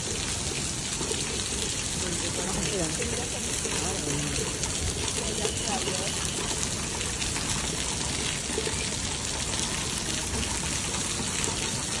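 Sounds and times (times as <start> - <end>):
storm water pouring down: 0.0 - 12.0.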